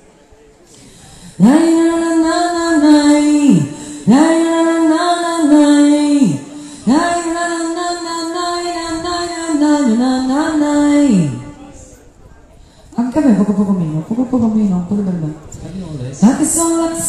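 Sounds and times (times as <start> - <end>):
woman singing into a microphone: 0.8 - 11.7, 16.2 - 17.0.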